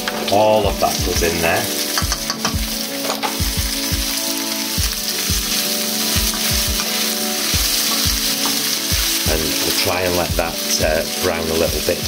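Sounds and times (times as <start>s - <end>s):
food sizzling in frying pan: 0.0s - 12.0s.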